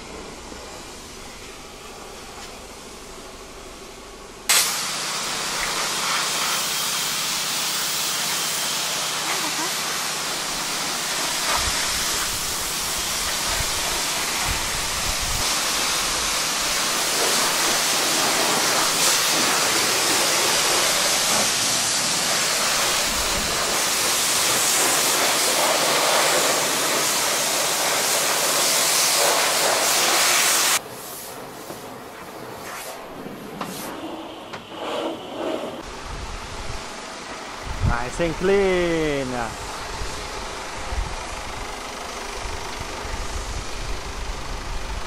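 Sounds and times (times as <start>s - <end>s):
pressure washer spraying water: 4.5s - 35.9s.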